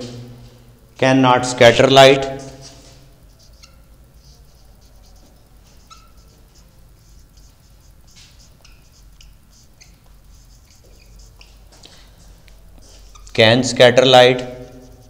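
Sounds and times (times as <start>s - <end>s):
low steady hum: 0.0s - 15.0s
marker scratching on whiteboard: 2.2s - 15.0s.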